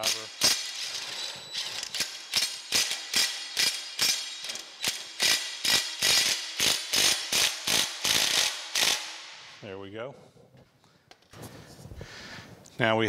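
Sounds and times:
impact driver hammering: 0:00.0 - 0:09.2.

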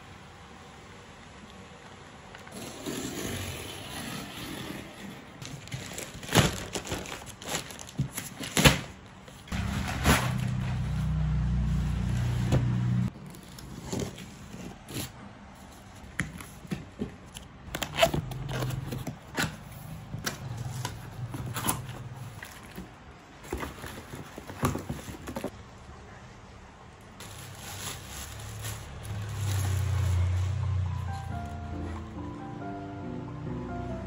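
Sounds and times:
cardboard and plastic wrapping handled: 0:05.4 - 0:25.6, 0:27.1 - 0:32.0
low hum: 0:09.6 - 0:13.1.

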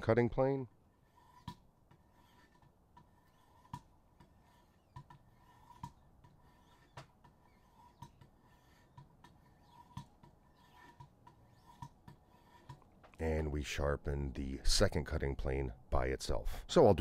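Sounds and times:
sharpening stone scraping knife edge: 0:01.0 - 0:12.8.

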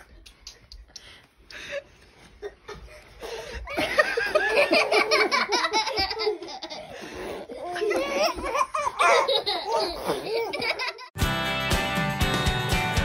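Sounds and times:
loud laughter: 0:03.7 - 0:06.9.

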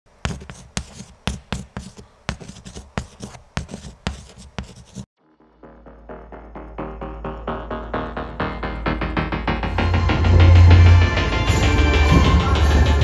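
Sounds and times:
pen scribbling: 0:00.2 - 0:05.1
electronic music with deep bass: 0:05.2 - 0:13.0.

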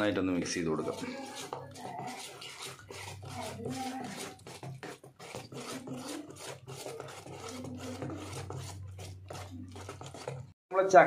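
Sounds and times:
spoon stirring batter in steel bowl: 0:00.0 - 0:10.9.

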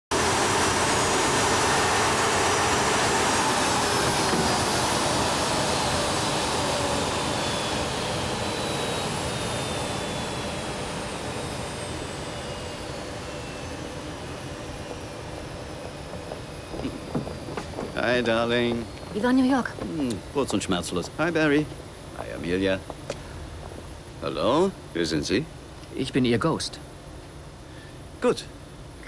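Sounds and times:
high whine gliding downward: 0:00.1 - 0:26.7
jet engines winding down: 0:00.1 - 0:26.8.

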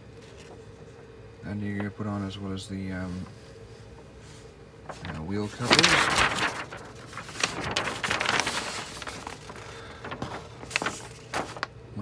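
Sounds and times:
paper rustling and crinkling: 0:00.1 - 0:00.9, 0:04.0 - 0:12.0.

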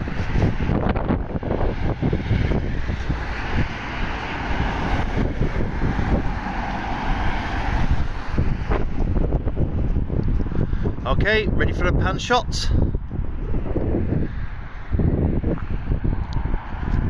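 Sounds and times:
car passing by: 0:00.0 - 0:09.4
road traffic: 0:00.0 - 0:17.0
wind buffeting microphone: 0:00.0 - 0:17.0.

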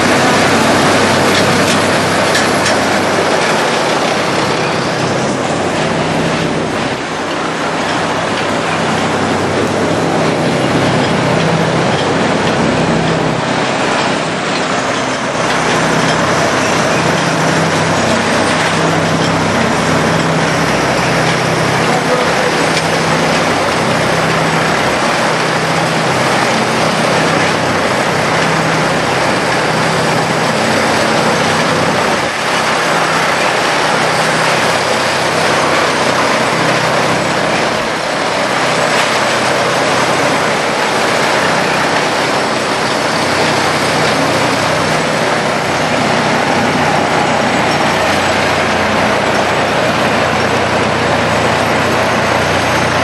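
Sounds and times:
diesel engine hum: 0:00.0 - 0:53.0
loud mechanical grinding noise: 0:00.0 - 0:53.0.

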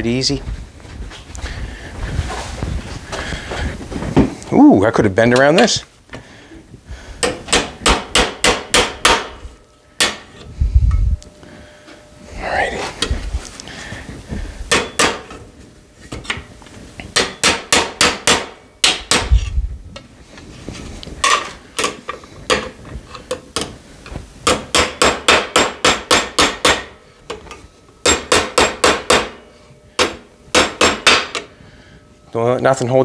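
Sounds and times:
hammer tapping on metal: 0:07.2 - 0:09.4, 0:14.7 - 0:15.4, 0:17.1 - 0:19.3, 0:24.4 - 0:29.4, 0:30.0 - 0:31.5.

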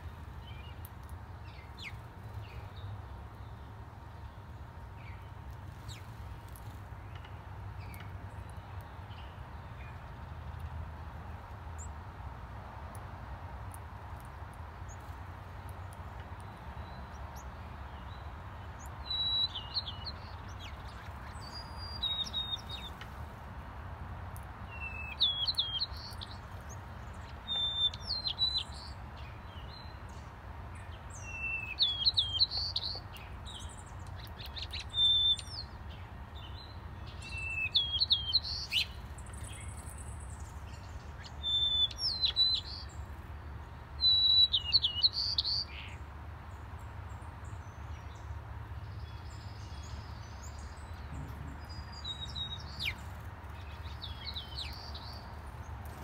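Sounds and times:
songbird singing warbled phrases: 0:14.9 - 0:23.0, 0:24.6 - 0:46.0, 0:48.9 - 0:56.0.

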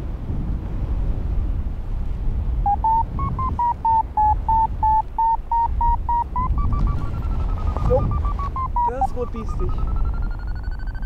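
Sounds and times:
wind rushing on microphone: 0:00.0 - 0:11.0
variometer beeping: 0:02.7 - 0:11.0.

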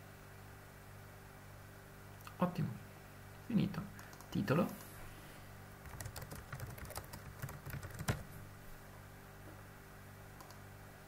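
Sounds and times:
typing on computer keyboard: 0:05.8 - 0:08.3, 0:10.4 - 0:10.6.

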